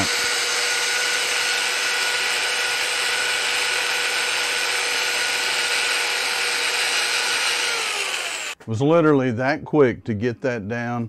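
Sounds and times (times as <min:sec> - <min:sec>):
power sander motor whine: 0:00.0 - 0:08.6
sanding pad on wood: 0:00.0 - 0:08.6.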